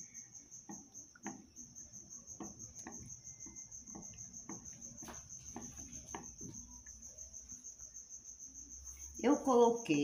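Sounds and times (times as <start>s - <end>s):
spoon stirring in plastic bowl: 0.6s - 7.1s.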